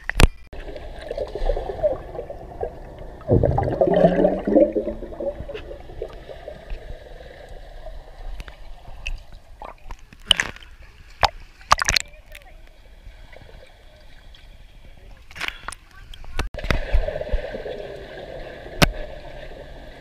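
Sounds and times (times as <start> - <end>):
underwater bubbling and gurgling: 0.0 - 15.1, 16.6 - 20.0
water splashes: 0.0 - 20.0.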